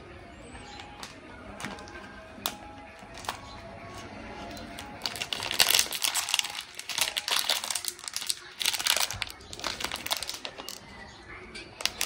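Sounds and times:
plastic bag crinkling: 1.0s - 3.4s, 4.4s - 10.9s, 11.8s - 12.0s.

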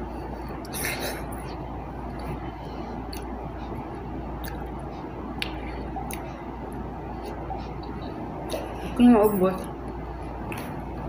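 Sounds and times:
low background hum: 0.0s - 11.0s
chewing fruit: 0.6s - 8.9s.

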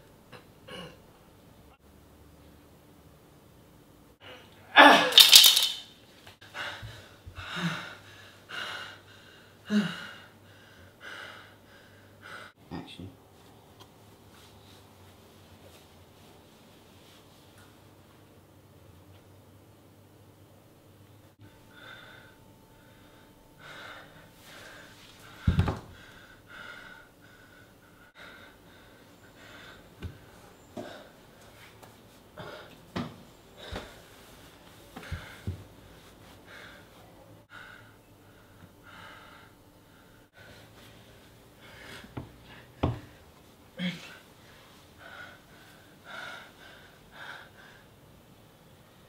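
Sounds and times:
man breathing heavily and gasping: 6.4s - 12.6s, 45.0s - 48.0s.

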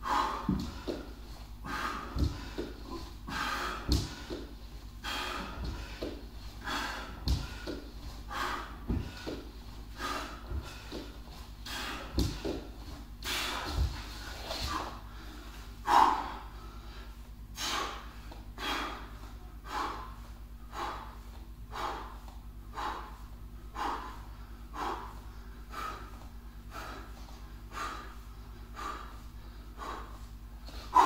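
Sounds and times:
man breathing hard: 0.0s - 31.0s.

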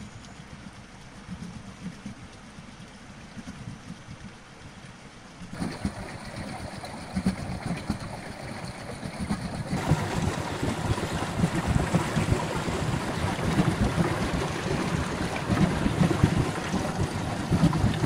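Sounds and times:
river water rushing and splashing: 5.5s - 18.0s.

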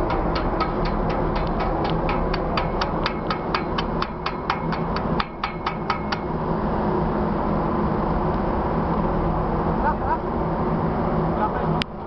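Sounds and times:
rapid metallic tapping: 0.0s - 6.3s
ship engine drone: 0.0s - 12.0s
wind: 0.0s - 12.0s.

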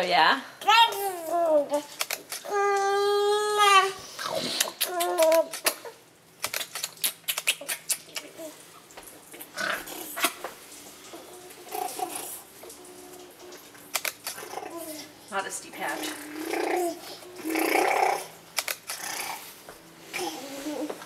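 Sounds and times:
camera shutter clicks: 6.4s - 7.5s, 13.9s - 14.4s, 18.6s - 19.0s.

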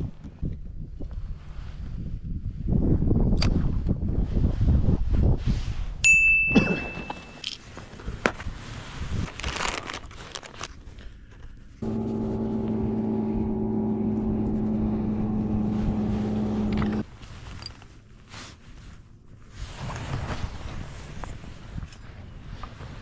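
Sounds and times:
small electric motor humming: 11.8s - 17.0s.

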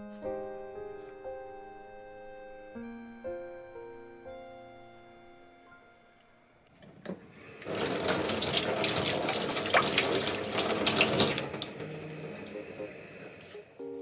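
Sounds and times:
soft music: 0.0s - 7.0s, 9.8s - 14.0s
tap water splashing in sink: 7.0s - 12.0s.

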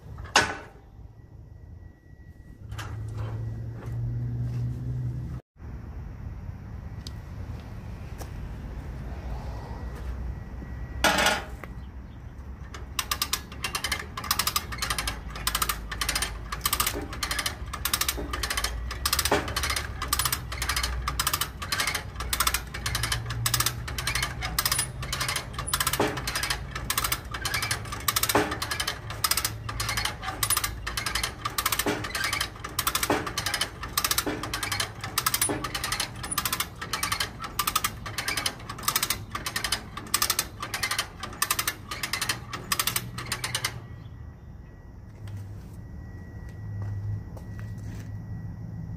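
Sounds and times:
ratchet pawl clicking: 12.8s - 43.8s.

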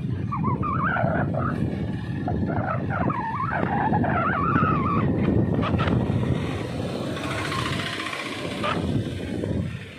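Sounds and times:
street traffic: 0.0s - 9.9s
vehicle engine running: 1.0s - 9.9s.

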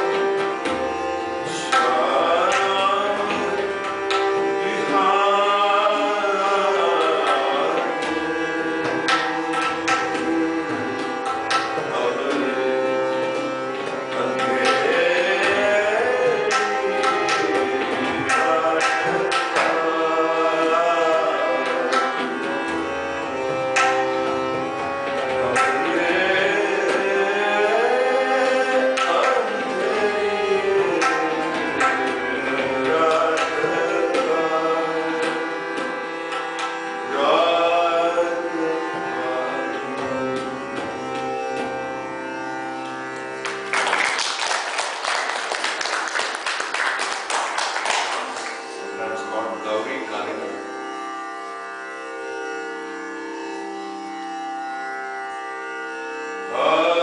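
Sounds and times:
harmonium chords: 0.0s - 57.0s
tabla strokes: 7.0s - 12.6s, 13.3s - 20.0s, 23.7s - 26.2s
people clapping: 42.8s - 48.9s.

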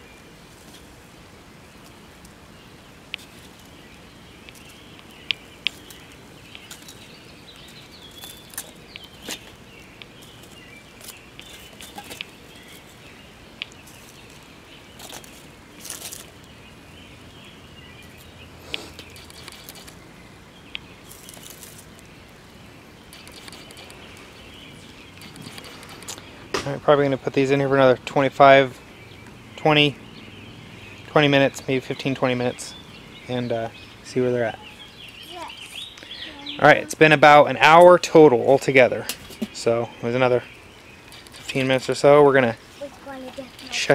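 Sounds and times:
onions sizzling on charcoal: 0.0s - 29.9s, 30.6s - 43.9s
pops and crackles: 4.4s - 7.0s, 13.6s - 14.4s, 18.6s - 20.0s, 23.1s - 24.3s, 25.2s - 26.8s, 41.0s - 41.8s.

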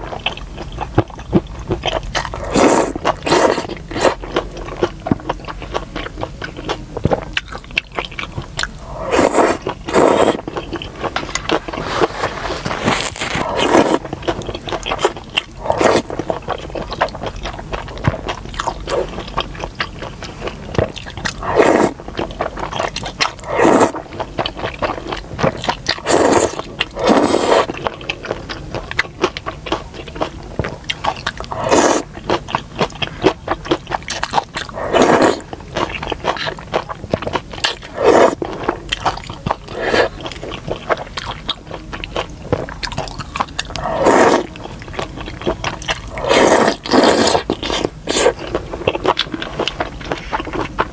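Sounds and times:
wet chewing: 0.0s - 50.9s
noodles slurped: 2.3s - 4.2s, 8.8s - 14.1s, 21.3s - 22.0s, 22.9s - 24.1s, 25.5s - 27.8s, 31.4s - 32.1s, 34.7s - 35.5s, 37.6s - 38.7s, 39.6s - 40.5s, 43.7s - 45.1s, 45.8s - 49.3s.

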